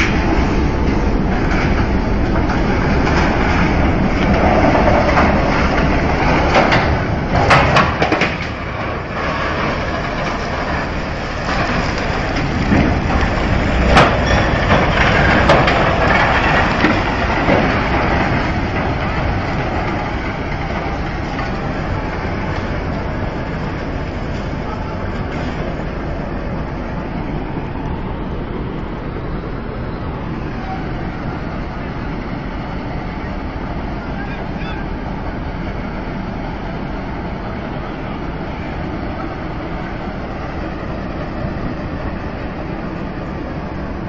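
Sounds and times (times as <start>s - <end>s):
sharp cracks and bangs: 0.0s - 25.8s
ship hulls grinding together: 0.0s - 27.2s.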